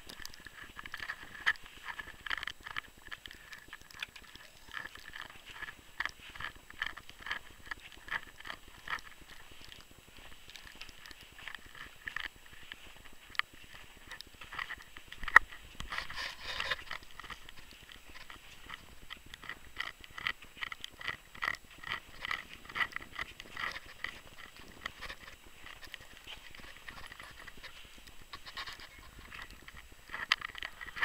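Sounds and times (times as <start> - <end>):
footsteps crunching in snow: 0.0 - 31.0.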